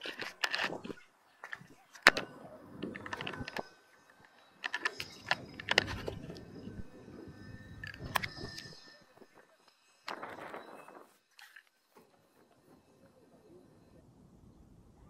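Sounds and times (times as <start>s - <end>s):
hands clicking and tapping camera: 0.0s - 3.7s.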